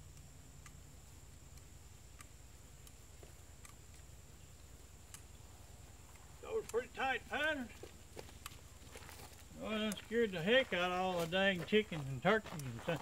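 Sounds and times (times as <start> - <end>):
faint ticks: 0.0 - 0.8, 1.4 - 5.4
low steady hum: 0.0 - 13.0.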